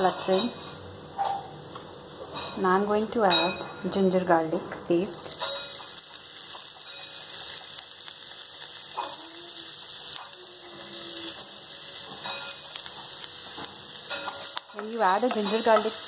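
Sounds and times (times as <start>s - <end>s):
frying hiss with crackles: 0.0s - 0.6s, 4.2s - 16.0s.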